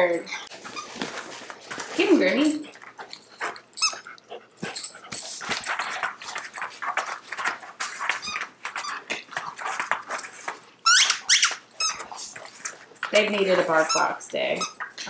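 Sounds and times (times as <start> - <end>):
paws and claws clicking on floor: 0.1 - 15.0
toy squeaks: 3.8 - 4.1, 10.8 - 12.1.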